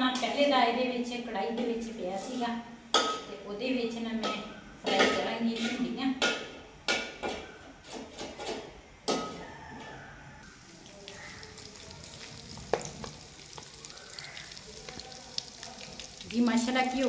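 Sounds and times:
metal spoon scraping a pan: 4.2s - 6.0s
oil sizzling: 10.4s - 17.0s.

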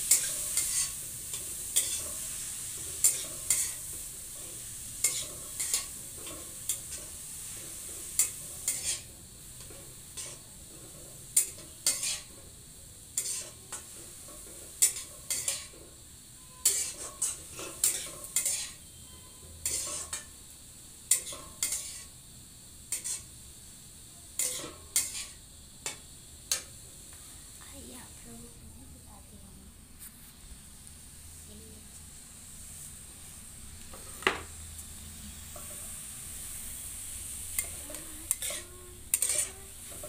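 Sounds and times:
frying sizzle: 0.0s - 40.0s
ladle scraping metal pan: 16.5s - 20.2s.

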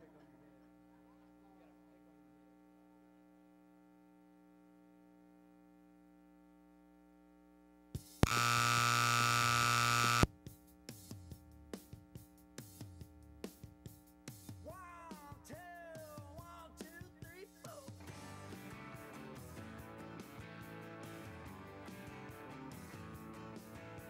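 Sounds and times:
faint electrical hum: 0.0s - 10.3s
loud buzzer horn: 8.2s - 10.3s.

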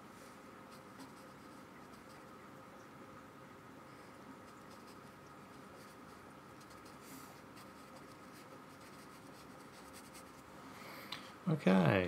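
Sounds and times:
paintbrush strokes on paper: 0.2s - 2.3s, 3.9s - 10.5s.

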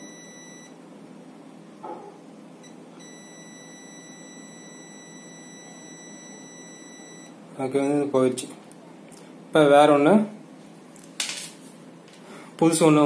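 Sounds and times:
multimeter continuity beep: 0.0s - 0.8s, 2.6s - 7.4s.

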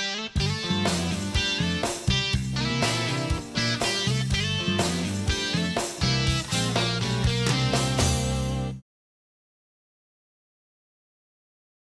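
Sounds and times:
strummed guitar: 0.0s - 8.8s
low steady bass: 0.4s - 8.8s.

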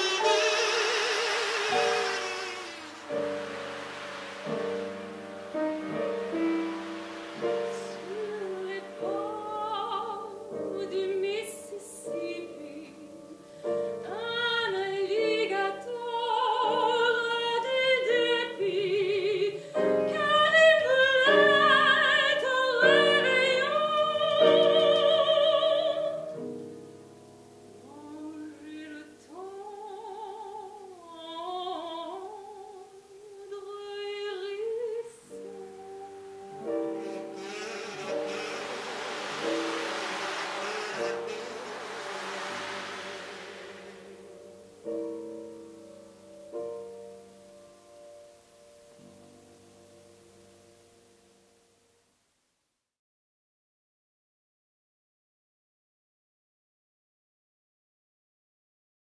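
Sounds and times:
keyboard accompaniment: 0.0s - 14.3s, 34.9s - 51.7s
woman singing operatically: 7.7s - 13.4s, 14.0s - 26.3s, 27.9s - 38.6s.

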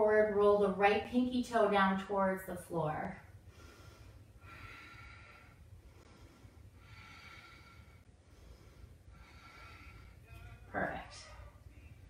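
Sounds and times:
low room hum: 0.0s - 12.0s
person breathing slowly: 3.4s - 10.5s.

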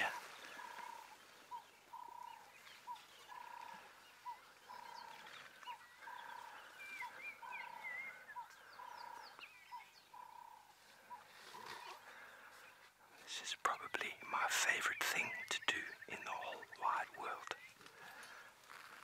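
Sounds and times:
faint animal call: 0.0s - 12.4s
faint bird chirps: 0.0s - 18.5s.

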